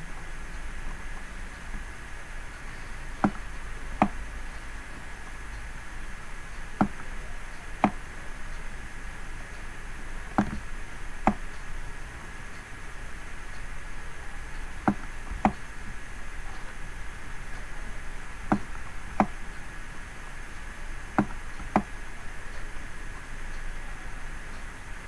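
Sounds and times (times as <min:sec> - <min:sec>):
steady hiss with high tone: 0:00.0 - 0:25.0
computer mouse clicks: 0:03.2 - 0:04.2, 0:07.8 - 0:08.0, 0:10.3 - 0:11.6, 0:14.8 - 0:15.7, 0:18.5 - 0:19.4, 0:21.2 - 0:22.0.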